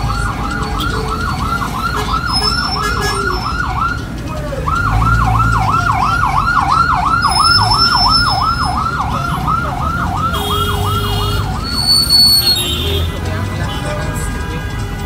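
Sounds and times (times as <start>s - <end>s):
ambulance siren yelping: 0.0s - 12.9s
low rumble of minibus engine: 0.0s - 15.0s.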